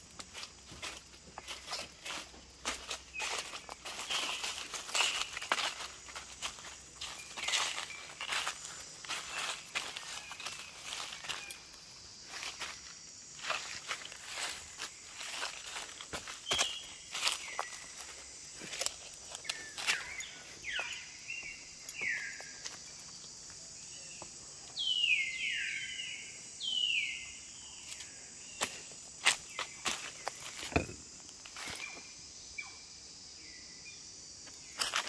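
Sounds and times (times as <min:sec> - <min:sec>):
footsteps crunching on dry leaves: 0:00.0 - 0:23.6, 0:27.9 - 0:32.1, 0:34.7 - 0:35.0
high-pitched insect drone: 0:00.0 - 0:35.0.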